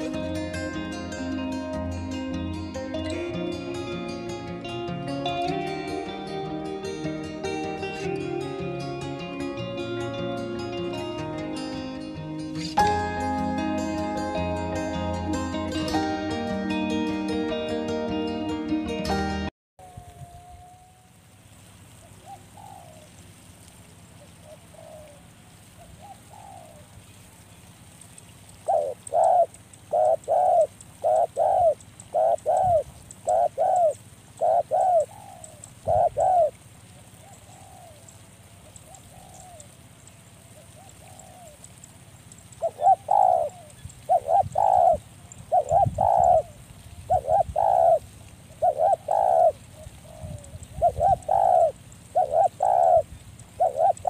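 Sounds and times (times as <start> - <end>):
dove cooing: 0.0 - 3.6, 19.8 - 21.2, 22.0 - 23.4, 24.2 - 27.0, 28.5 - 54.0.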